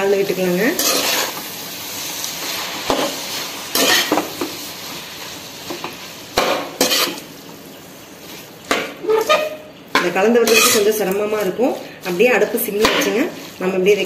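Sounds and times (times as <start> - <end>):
noodles sizzling in a pan: 0.0 - 14.0
metal spatula scraping pan: 0.7 - 1.4, 6.4 - 7.2, 9.0 - 9.6, 10.4 - 11.0.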